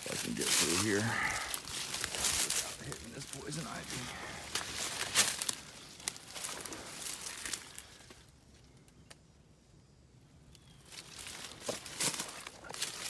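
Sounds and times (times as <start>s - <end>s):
footsteps crunching dry leaves: 0.0s - 8.2s, 10.8s - 13.0s
brush and vines rustling: 0.0s - 9.2s, 10.5s - 13.0s.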